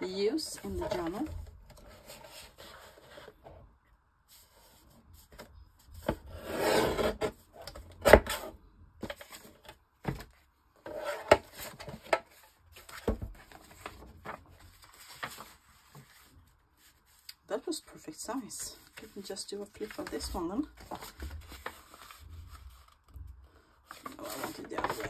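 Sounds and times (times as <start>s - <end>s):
paper rustling: 11.1s - 17.3s, 18.2s - 25.0s.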